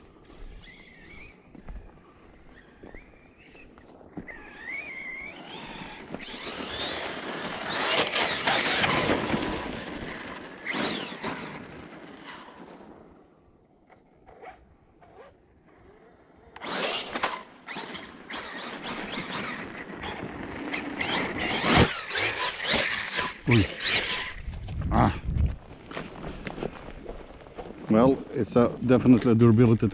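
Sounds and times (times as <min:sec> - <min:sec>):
electric motor whine: 0:00.0 - 0:13.2, 0:14.2 - 0:24.5
tyres on icy gravel: 0:00.0 - 0:29.9.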